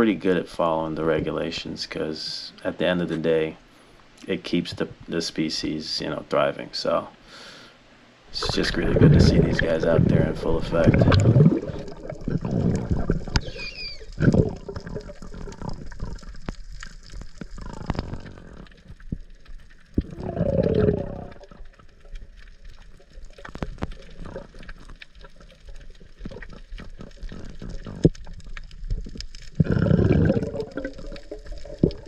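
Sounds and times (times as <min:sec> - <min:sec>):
muffled underwater water noise: 0:00.0 - 0:05.5, 0:08.3 - 0:32.0
low gurgling water surges: 0:08.3 - 0:32.0.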